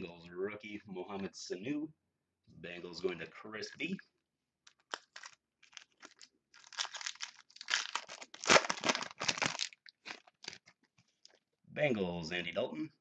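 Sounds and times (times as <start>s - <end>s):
foil wrapper crinkling and tearing: 4.6s - 11.4s.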